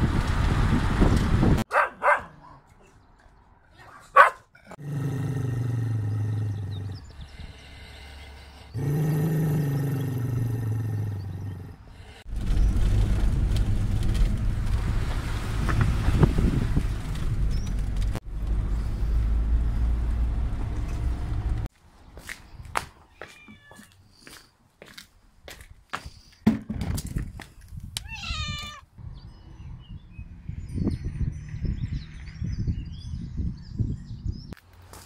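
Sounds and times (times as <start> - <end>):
in-car road noise: 0.0 - 4.7, 11.0 - 22.2, 28.0 - 35.0
dog barking: 1.7 - 2.7, 3.8 - 4.5.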